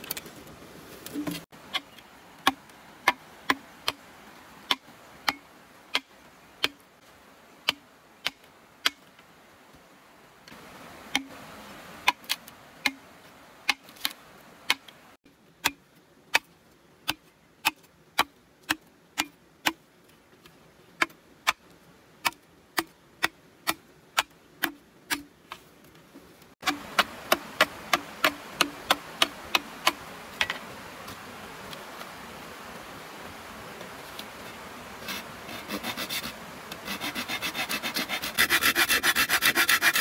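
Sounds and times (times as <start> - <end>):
machete chopping bamboo: 4.7 - 6.8, 7.7 - 9.0, 22.2 - 25.3, 26.6 - 30.0.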